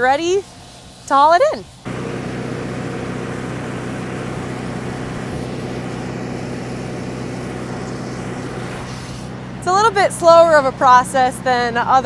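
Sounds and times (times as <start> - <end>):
engine drone: 1.8 - 12.0
grain rushing from auger: 1.9 - 9.4.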